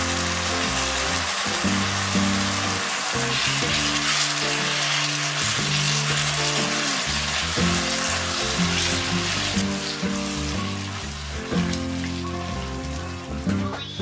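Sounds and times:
pasta sizzling in a pot: 0.0s - 13.7s
background music: 0.0s - 14.0s
spatula stirring pot: 1.7s - 12.8s.

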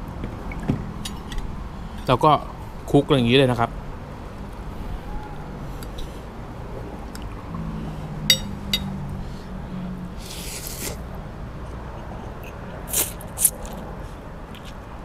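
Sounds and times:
eating noises: 7.0s - 7.9s, 10.2s - 11.0s, 11.6s - 14.8s
cutlery clinking on ceramic plate: 8.3s - 9.0s
slurp: 10.2s - 11.0s, 12.3s - 13.8s.

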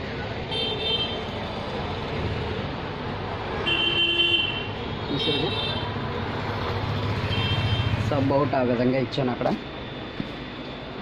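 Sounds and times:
low traffic rumble: 0.0s - 11.0s.

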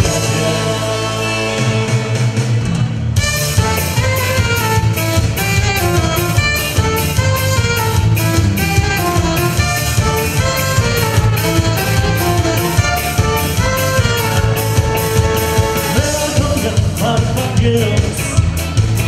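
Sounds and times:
drum kit steady beat: 0.0s - 19.0s
saxophone melody: 3.2s - 16.6s.

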